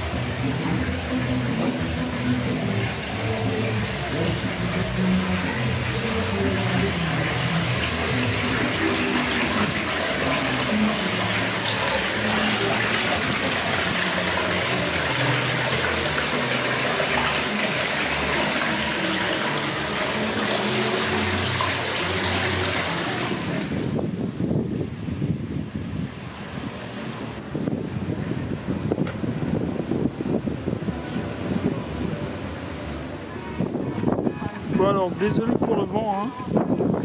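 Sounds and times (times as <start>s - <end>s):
water splashing into stone basin: 0.0s - 24.1s.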